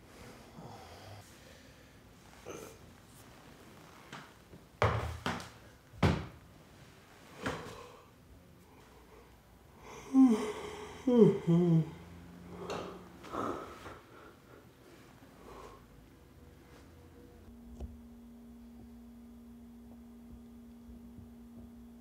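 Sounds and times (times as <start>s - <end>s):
man breathing heavily: 0.0s - 2.8s, 7.3s - 16.1s
man groaning: 9.9s - 13.8s.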